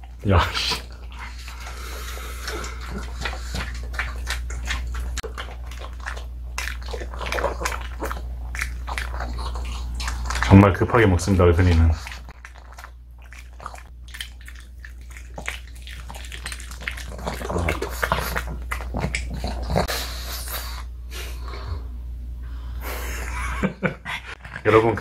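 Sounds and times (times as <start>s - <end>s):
dog chewing crunches: 0.0s - 19.9s
dog breathing noisily: 0.8s - 4.3s, 17.2s - 23.1s.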